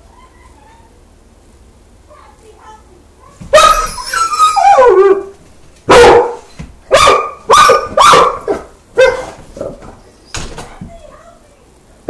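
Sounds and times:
large dog barking: 3.5s - 9.8s.

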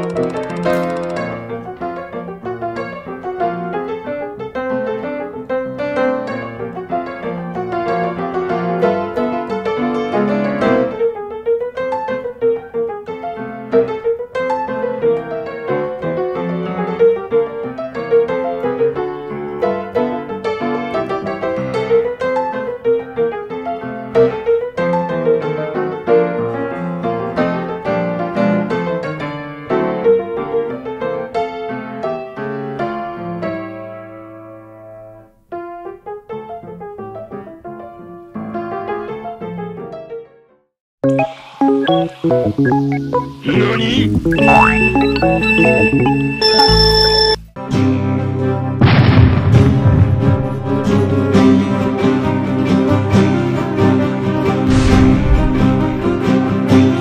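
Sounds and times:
piano music: 41.0s - 47.6s.

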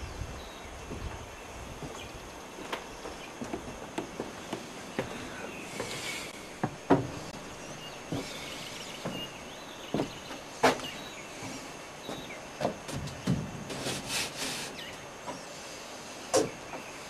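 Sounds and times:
footsteps on porch floor: 0.8s - 15.5s.

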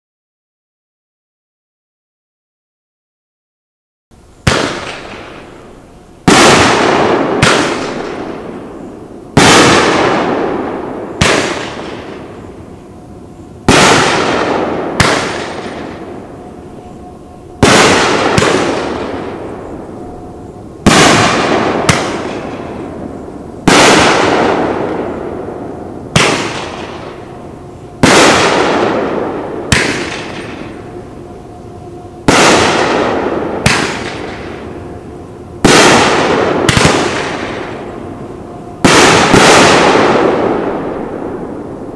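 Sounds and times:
firework booms with echo: 4.4s - 12.5s, 13.6s - 16.4s, 17.6s - 19.9s, 20.8s - 27.4s, 28.0s - 31.0s, 32.2s - 34.8s, 35.6s - 38.0s, 38.8s - 41.8s.

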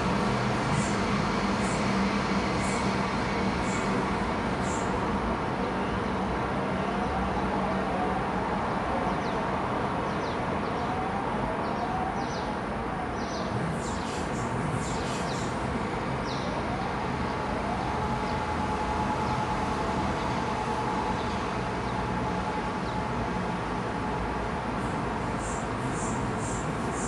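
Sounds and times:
town background hum: 0.0s - 27.0s
distant electronic siren wailing: 5.8s - 23.3s
birds chirping: 13.2s - 18.4s.

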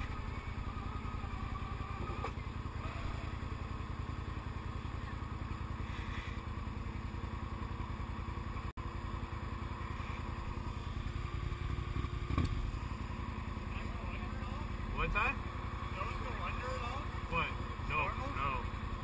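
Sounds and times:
atv engine idling: 0.0s - 19.0s.

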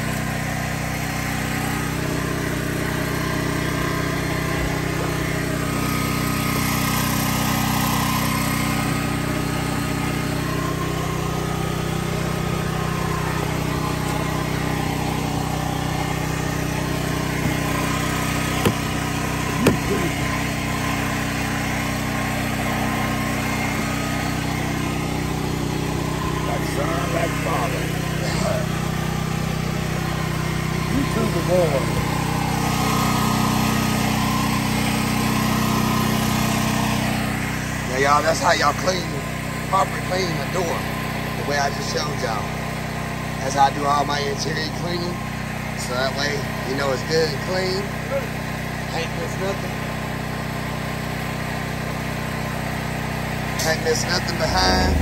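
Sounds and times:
engine droning: 0.0s - 35.3s, 53.6s - 55.0s.

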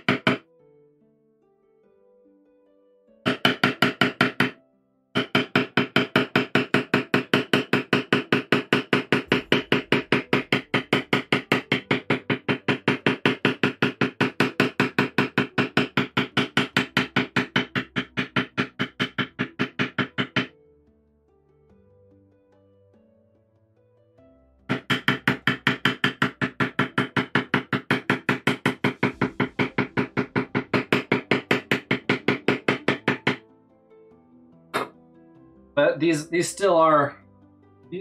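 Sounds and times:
mallet striking leather stamp: 0.0s - 0.4s, 3.3s - 4.6s, 5.2s - 20.5s, 24.7s - 33.4s, 34.8s - 35.0s.

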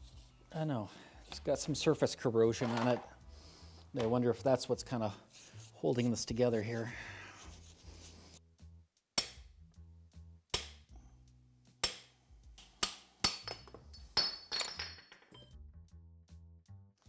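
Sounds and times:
background music: 0.0s - 17.0s
hammer tapping steel bar: 9.2s - 9.4s, 10.5s - 10.8s, 11.8s - 13.6s
metal ringing clink: 13.2s - 15.6s.

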